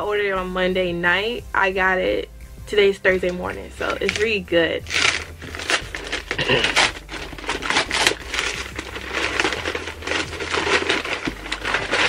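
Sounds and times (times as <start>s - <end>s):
paper envelope crinkling and tearing: 3.8s - 12.0s.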